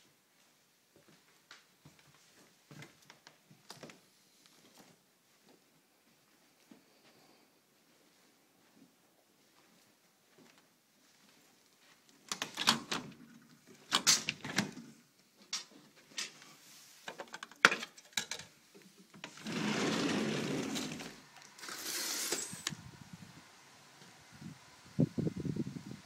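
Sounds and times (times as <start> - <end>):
door rolling along track: 19.2 - 22.7
hissy door scrape: 19.2 - 22.8.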